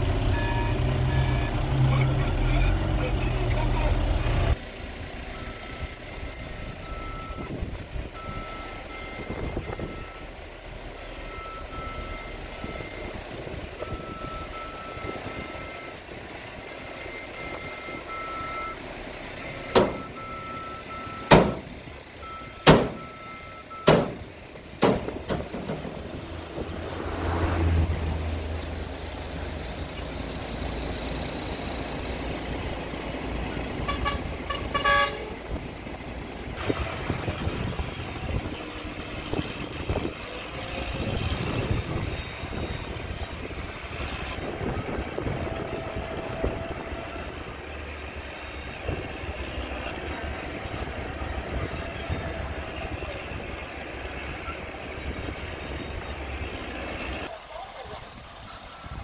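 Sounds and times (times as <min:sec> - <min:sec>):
diesel engine running: 0:00.0 - 0:59.0
reversing warning beeps: 0:05.3 - 0:07.6, 0:08.2 - 0:10.4, 0:11.0 - 0:13.2, 0:13.8 - 0:16.0, 0:16.6 - 0:21.6, 0:22.2 - 0:24.2
loud bangs of truck bed: 0:19.7 - 0:20.1, 0:21.2 - 0:21.7, 0:22.6 - 0:23.2, 0:23.8 - 0:26.2.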